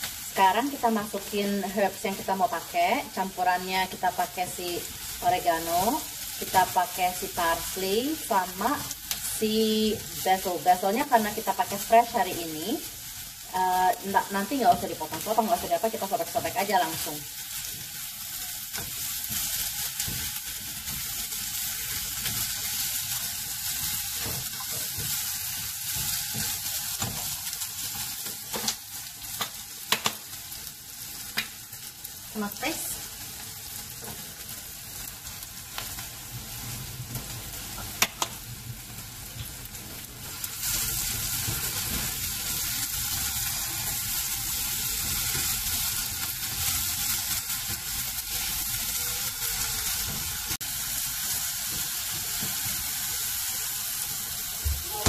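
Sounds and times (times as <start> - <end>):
food sizzling in a saucepan: 0.0 - 55.0
spatula stirring food: 17.3 - 31.9.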